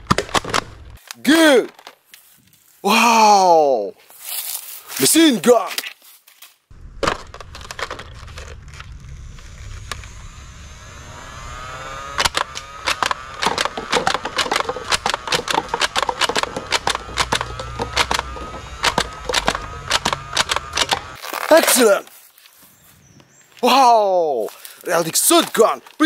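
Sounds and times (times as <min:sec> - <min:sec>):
toy blaster motor whine: 0:08.3 - 0:21.2
rapid clicks of shots: 0:12.2 - 0:21.0
paper cups knocked over: 0:12.2 - 0:21.1.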